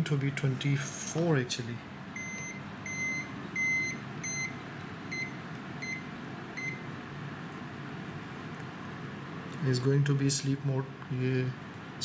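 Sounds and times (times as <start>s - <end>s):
clamp meter beeping: 2.2s - 6.8s.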